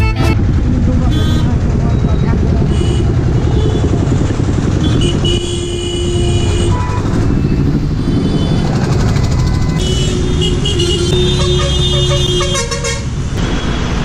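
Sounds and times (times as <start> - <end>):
traffic engines rumbling: 0.0 - 14.0
vehicle horn toots: 4.8 - 7.1, 9.4 - 13.2.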